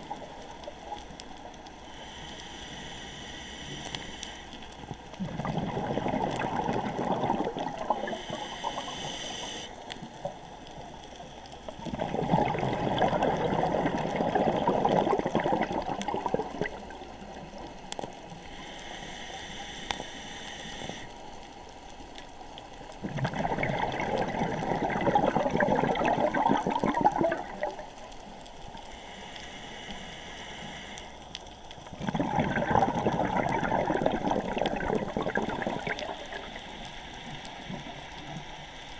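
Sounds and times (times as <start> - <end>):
inhaling hiss through a regulator: 1.8 - 4.9, 7.6 - 10.0, 16.8 - 21.3, 28.2 - 31.2, 36.1 - 38.9
exhaled air bubbling underwater: 4.7 - 18.9, 22.7 - 28.8, 31.8 - 38.9.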